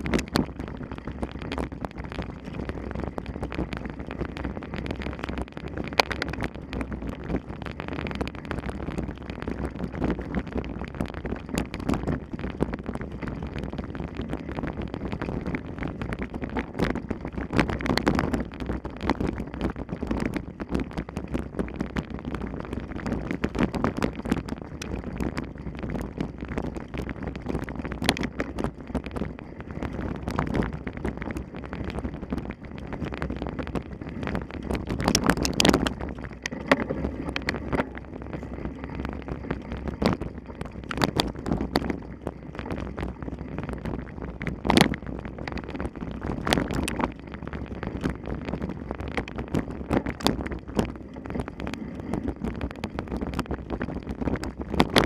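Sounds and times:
bike tyre rumble: 0:00.0 - 0:55.0
wind buffeting microphone: 0:00.0 - 0:55.0
bike rattles and knocks: 0:35.0 - 0:42.0.

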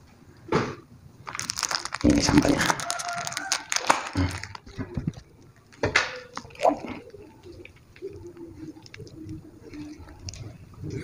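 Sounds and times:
sharp plastic crackles: 0:00.6 - 0:11.0
plastic bag handling: 0:01.2 - 0:05.3
wet squishing: 0:01.3 - 0:11.0.

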